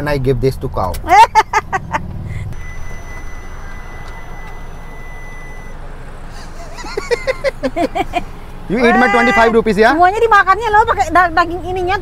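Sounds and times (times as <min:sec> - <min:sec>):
street traffic: 0:00.0 - 0:12.0
high-pitched beep tone: 0:02.5 - 0:05.8
person speaking: 0:08.7 - 0:09.7.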